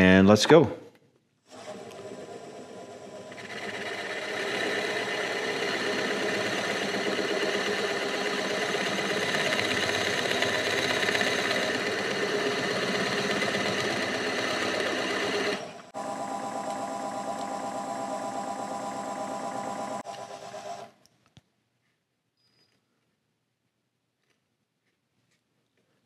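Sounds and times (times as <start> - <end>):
drill press boring into wood: 1.5 - 20.9.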